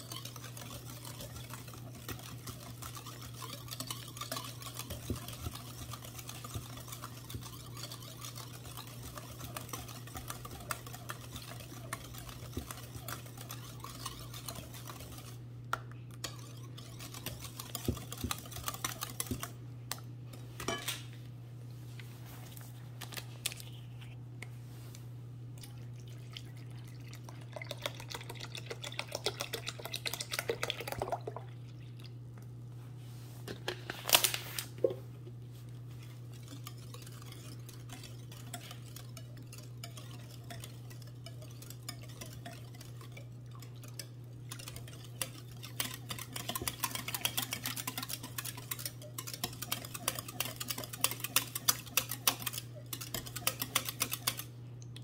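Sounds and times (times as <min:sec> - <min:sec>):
whisk clicking against glass bowl: 0:00.0 - 0:15.4, 0:16.2 - 0:20.1, 0:27.6 - 0:31.2, 0:36.0 - 0:54.5
steady low hum: 0:00.0 - 0:55.0.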